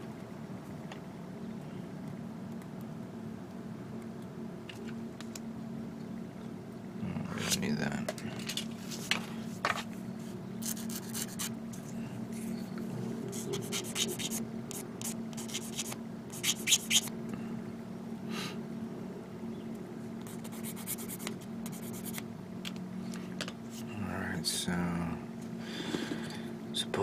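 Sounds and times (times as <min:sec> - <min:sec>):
scratching and rubbing on plastic: 0:08.4 - 0:12.6, 0:13.3 - 0:17.1, 0:20.3 - 0:22.2.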